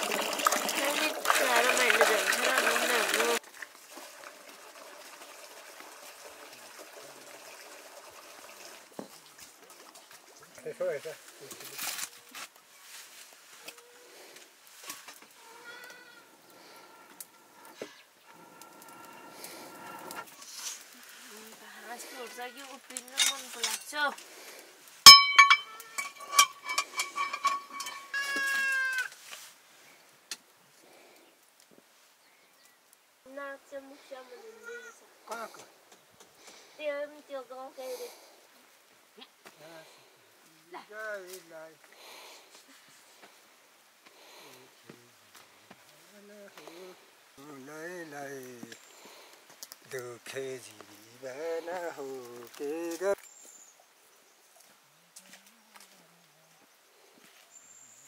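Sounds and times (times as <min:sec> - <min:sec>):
trickle of running water: 0:00.0 - 0:12.1, 0:14.2 - 0:29.6, 0:45.3 - 0:56.0
meow-like animal cry: 0:15.4 - 0:16.3, 0:28.2 - 0:29.1
light ringing clinks: 0:25.1 - 0:28.6.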